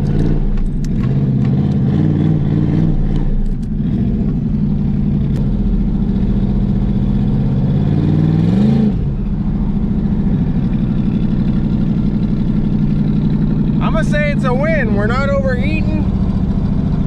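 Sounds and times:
truck engine from inside cab: 0.0 - 17.0.

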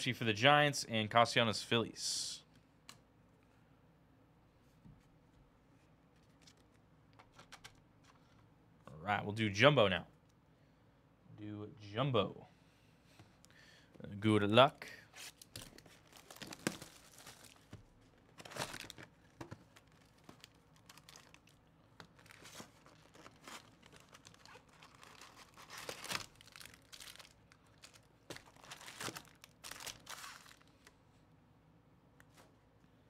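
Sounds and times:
foil packs rustling: 15.2 - 30.9
wrapping tearing and crinkling: 15.2 - 30.9.

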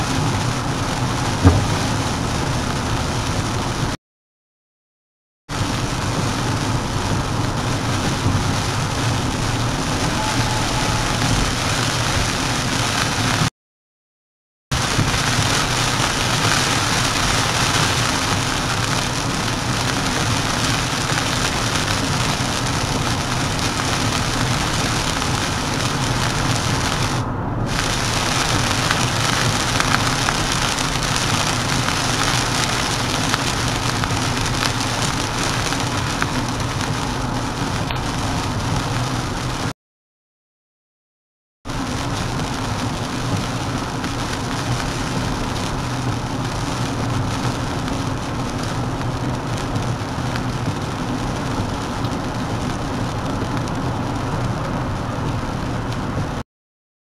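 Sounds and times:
heavy rain on car roof: 0.0 - 4.0, 5.5 - 13.5, 14.7 - 39.7, 41.7 - 56.4
tyre and road noise: 0.0 - 4.0, 5.5 - 13.5, 14.7 - 39.7.

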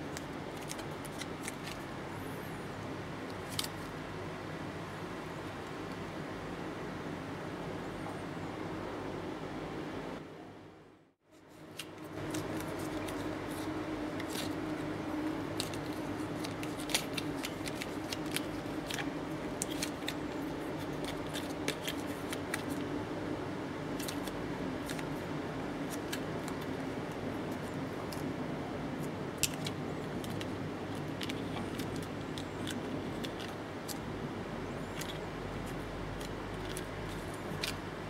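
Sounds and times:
paper card clicks and crinkles: 0.0 - 1.9, 3.3 - 3.9, 11.4 - 22.9, 23.9 - 28.3, 29.0 - 34.0, 34.8 - 38.0
steady background hiss: 0.0 - 38.0.

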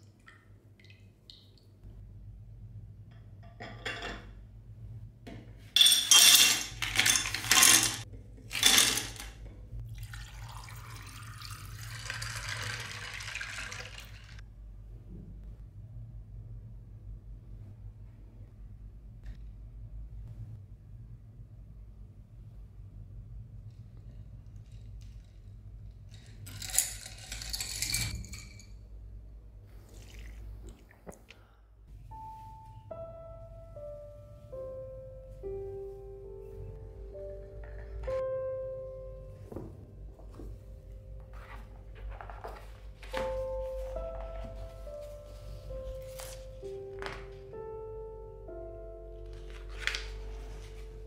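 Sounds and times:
kitchenware clinking and clattering: 3.4 - 4.4, 5.7 - 9.5, 26.2 - 28.8.

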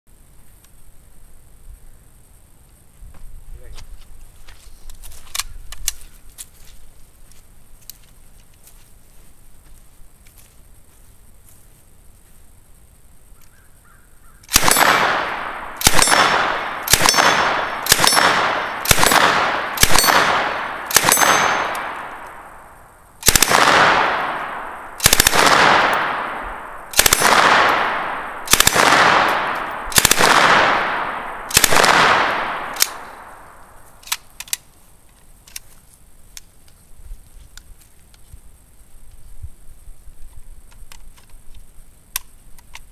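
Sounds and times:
light clicks of gun handling: 4.4 - 8.8, 34.0 - 36.8, 40.3 - 42.9
submachine gun firing bursts: 14.5 - 22.5, 23.2 - 33.6.

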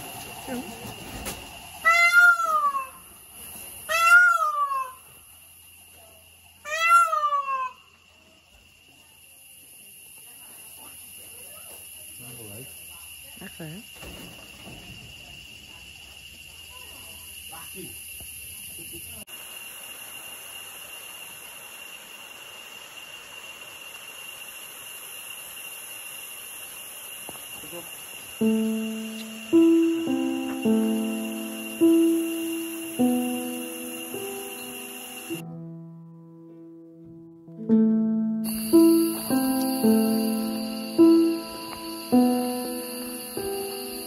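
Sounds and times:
insects chorus: 0.0 - 35.4, 38.4 - 44.0
peafowl calling: 1.8 - 3.2, 3.8 - 5.2, 6.6 - 7.8
lower steady tone: 28.4 - 36.6, 37.7 - 44.0.

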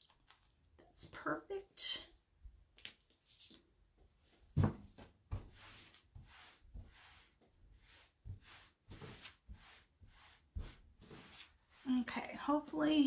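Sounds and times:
rustling and rubbing: 4.2 - 12.6.

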